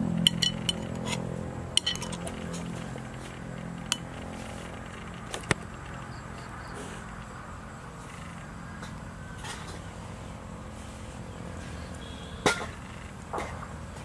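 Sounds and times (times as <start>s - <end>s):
metal spoon clinking against bowl: 0.2s - 1.2s, 1.8s - 2.7s.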